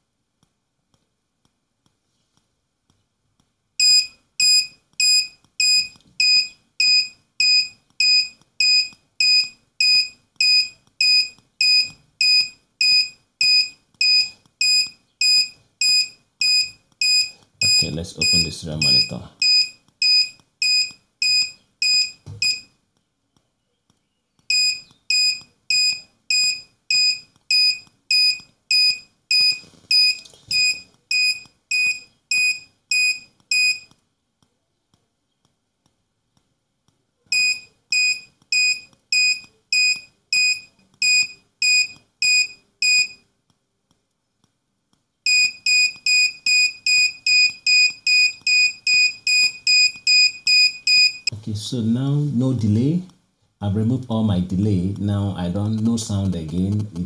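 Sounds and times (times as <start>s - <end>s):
high-pitched buzzer beeping: 3.8s - 22.7s, 24.5s - 33.9s, 37.3s - 43.2s, 45.3s - 51.3s.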